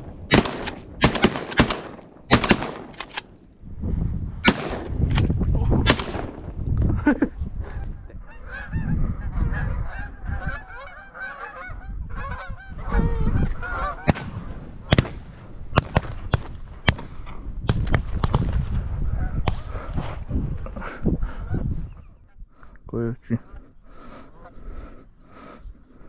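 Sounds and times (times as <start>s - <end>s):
wind rumbling on microphone: 0.0s - 26.0s
shotgun shots: 0.3s - 3.3s, 4.4s - 5.2s, 5.9s - 6.4s, 14.1s - 18.6s
geese honking: 7.7s - 14.2s, 24.0s - 24.8s.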